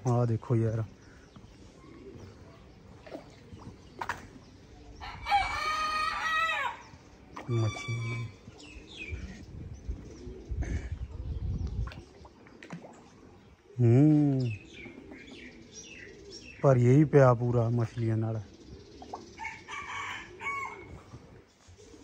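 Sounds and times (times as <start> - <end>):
rooster crowing: 5.0 - 6.8, 19.4 - 20.9.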